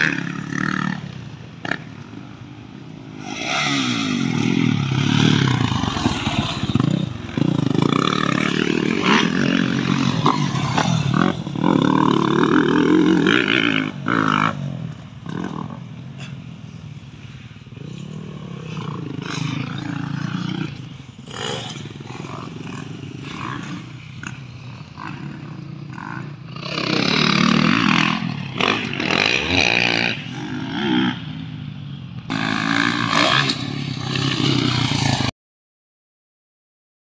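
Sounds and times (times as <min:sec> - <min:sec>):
dirt bike engines revving: 0:00.0 - 0:35.3.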